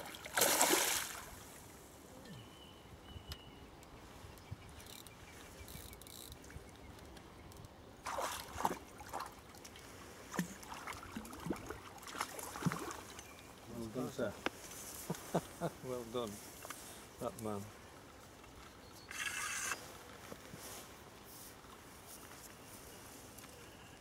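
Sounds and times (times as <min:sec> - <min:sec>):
fish splashing in water: 0:00.0 - 0:01.4.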